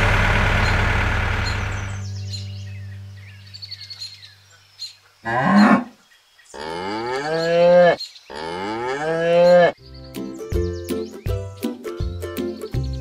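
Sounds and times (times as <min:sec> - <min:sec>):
cow mooing: 0:05.2 - 0:09.8.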